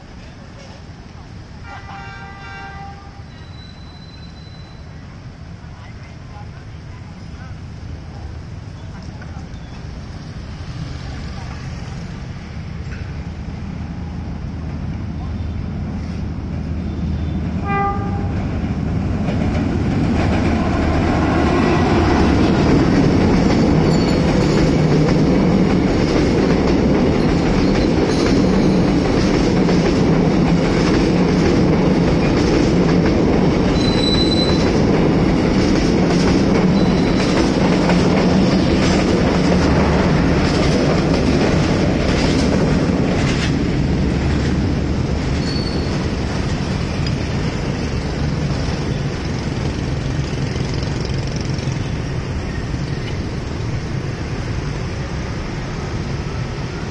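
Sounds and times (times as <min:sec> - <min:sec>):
train wheels rumbling on rail: 0:00.0 - 0:56.9
high wheel squeals: 0:03.2 - 0:05.0, 0:23.8 - 0:24.6, 0:33.7 - 0:34.8, 0:36.7 - 0:37.5, 0:45.3 - 0:47.2.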